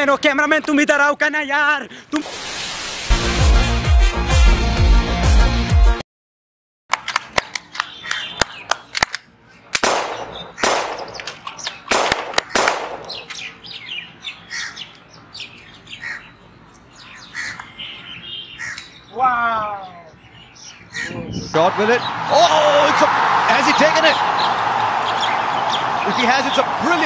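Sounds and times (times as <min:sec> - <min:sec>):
short bursts of hiss: 0:02.2 - 0:03.1
sharp clicks: 0:06.9 - 0:13.4
birds chirping and calling: 0:07.7 - 0:22.7, 0:23.6 - 0:26.7.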